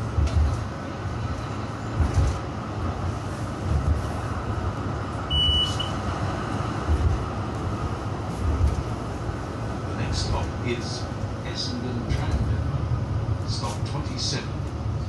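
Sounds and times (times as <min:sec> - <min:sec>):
tram rumbling with thumps: 0:00.0 - 0:15.0
high beep: 0:05.3 - 0:06.0.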